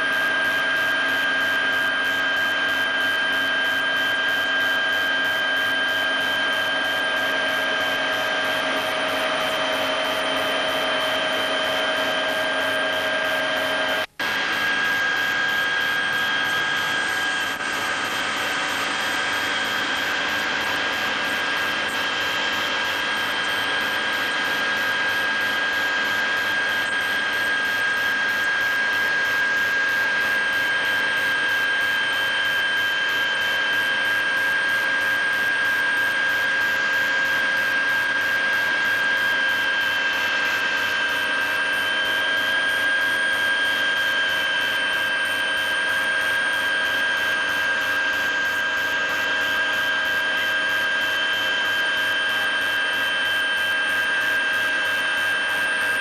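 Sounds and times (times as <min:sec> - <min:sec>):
helicopter cabin noise: 0:02.6 - 0:25.4.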